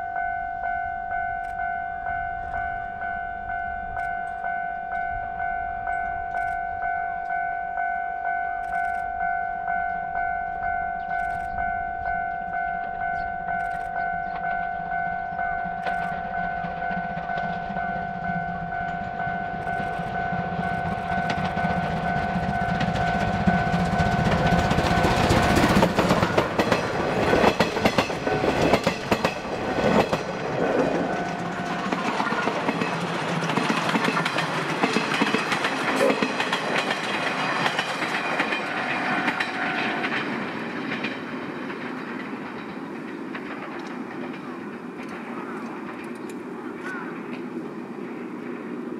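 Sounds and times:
steady ringing tone: 0:00.0 - 0:43.2
steam train passing: 0:00.0 - 0:48.9
wheels clacking over rail joints: 0:13.6 - 0:48.6.

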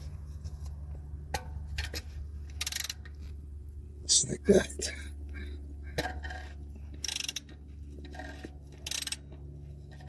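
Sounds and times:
ratchet wrench clicking: 0:01.4 - 0:03.3, 0:06.2 - 0:10.0.

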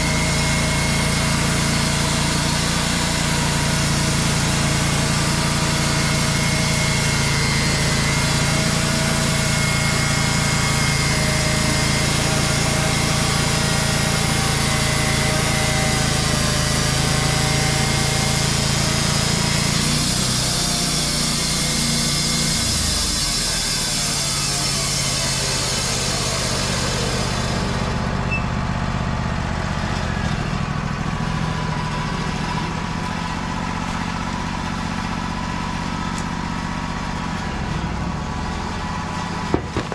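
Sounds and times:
sawmill engine running: 0:00.0 - 0:39.9
band saw blade hissing through log: 0:17.1 - 0:28.0.

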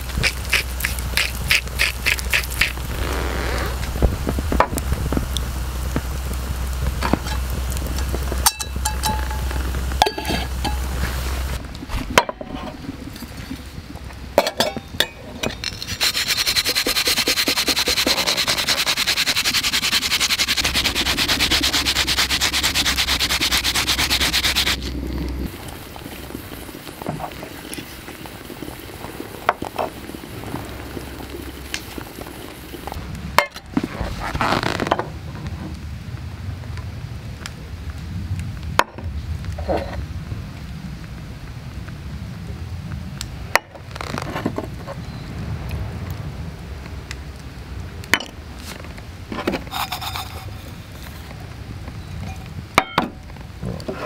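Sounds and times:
wood fire hissing and crackling: 0:00.0 - 0:54.0
metal cookware clinking: 0:08.5 - 0:10.8.

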